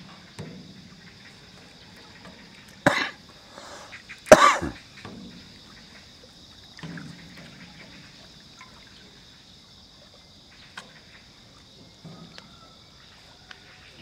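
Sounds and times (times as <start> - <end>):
person coughing: 2.9 - 4.8.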